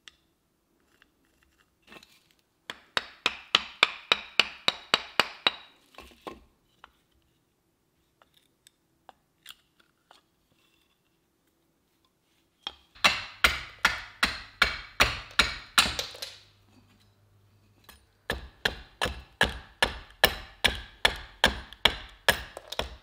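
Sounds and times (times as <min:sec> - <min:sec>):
chisel tapping into wood: 0:02.7 - 0:05.7, 0:12.7 - 0:16.4, 0:17.9 - 0:23.0.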